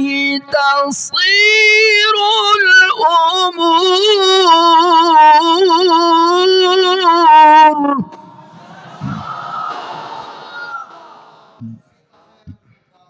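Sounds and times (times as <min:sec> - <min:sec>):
man chanting recitation: 0:11.6 - 0:13.0.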